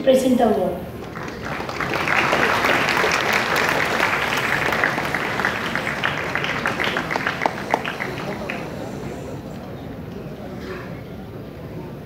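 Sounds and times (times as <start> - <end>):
audience applauding: 0.9 - 9.7.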